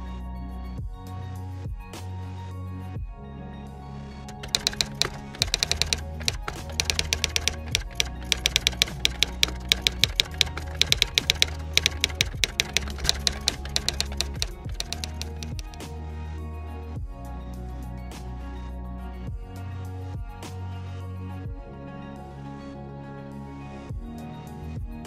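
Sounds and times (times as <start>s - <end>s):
background music with low notes: 0.0s - 25.0s
typewriter key clicks: 4.3s - 15.8s.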